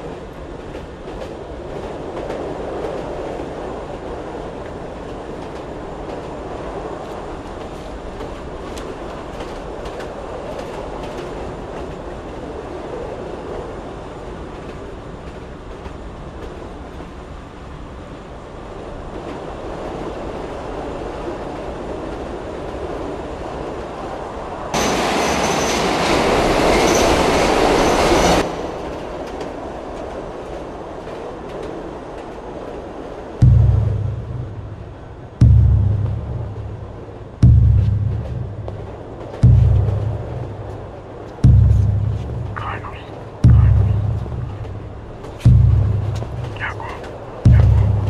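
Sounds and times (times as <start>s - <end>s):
train wheels rumbling on track: 0.0s - 48.0s
loud rushing noise: 33.4s - 48.0s.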